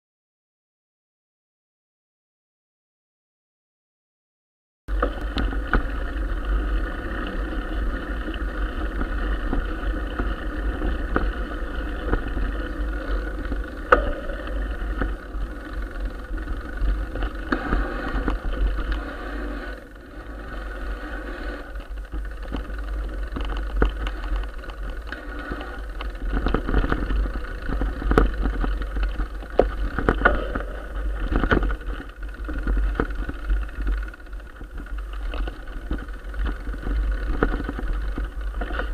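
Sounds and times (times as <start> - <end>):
bike knocking over bumps: 4.9 - 19.1, 21.0 - 38.9
bike tyre and frame rattle: 4.9 - 38.9
wind rumble on microphone: 4.9 - 38.9.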